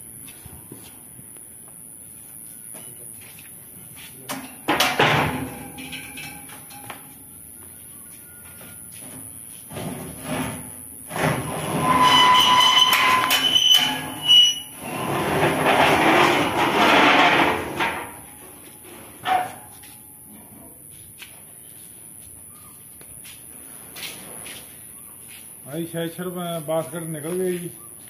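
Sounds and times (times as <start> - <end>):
metal sieve grinding and screeching: 10.0 - 18.2.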